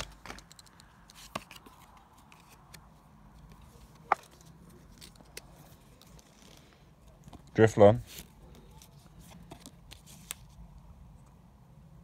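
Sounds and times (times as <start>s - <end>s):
cards clicking and tapping: 0.0s - 6.1s.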